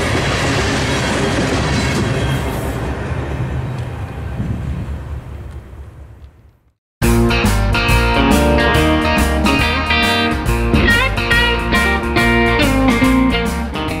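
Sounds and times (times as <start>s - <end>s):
guitar music with steady beat: 7.0s - 14.0s.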